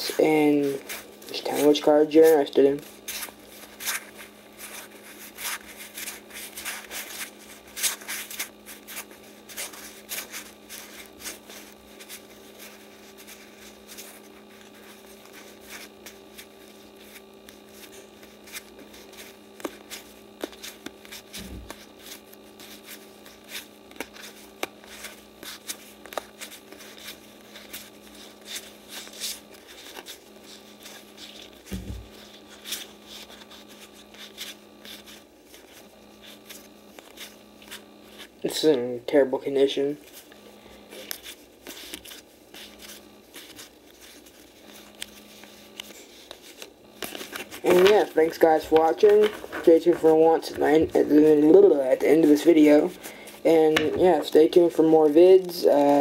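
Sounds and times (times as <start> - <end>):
cards flipping and snapping: 3.1 - 38.3, 40.9 - 51.6
dull thump: 31.7 - 32.1.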